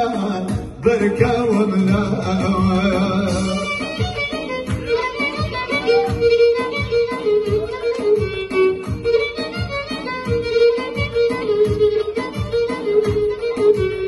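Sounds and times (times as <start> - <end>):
steady drum beat: 0.0 - 14.0
violin melody: 2.9 - 14.0.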